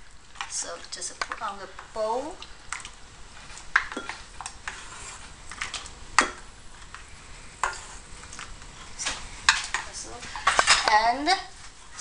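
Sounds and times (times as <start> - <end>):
wooden spoon scraping pan and bowl: 3.4 - 12.0.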